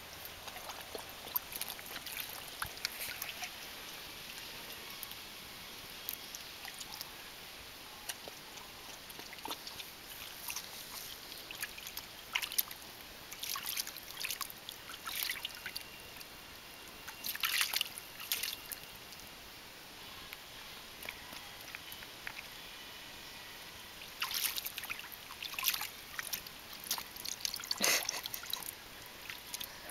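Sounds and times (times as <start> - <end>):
puppy splashing in water: 0.1 - 4.5, 8.0 - 15.8, 17.2 - 18.8, 24.0 - 29.9.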